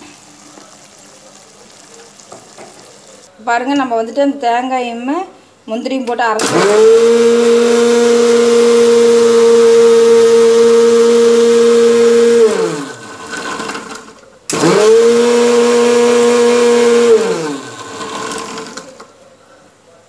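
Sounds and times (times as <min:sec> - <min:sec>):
mixer grinder motor whining: 0:06.4 - 0:19.0.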